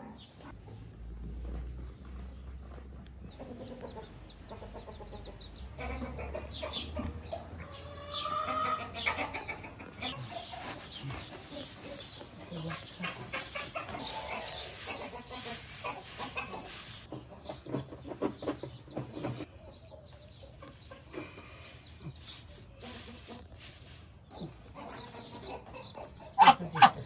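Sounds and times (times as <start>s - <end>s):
chickens clucking: 3.3s - 27.0s
dry hay rustling: 10.1s - 17.1s, 17.9s - 25.2s.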